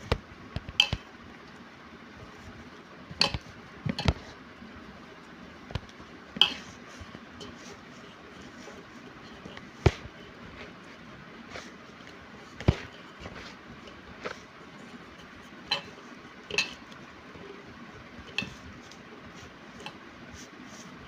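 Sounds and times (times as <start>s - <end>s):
metal spoon stirring in pot: 6.4s - 10.9s, 11.6s - 20.0s.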